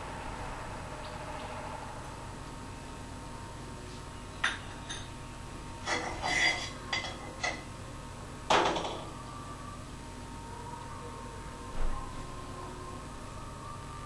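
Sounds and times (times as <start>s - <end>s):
utensils clinking on metal pan: 5.9s - 7.6s.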